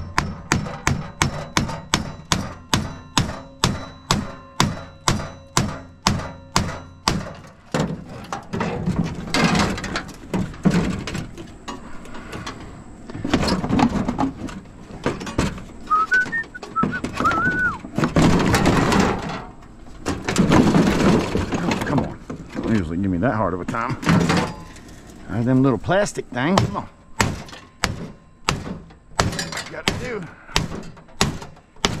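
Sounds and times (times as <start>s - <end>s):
hammer striking metal: 0.0s - 7.6s, 26.5s - 32.0s
metal clanking and scraping: 0.0s - 32.0s
brief gliding whistle: 15.9s - 17.8s.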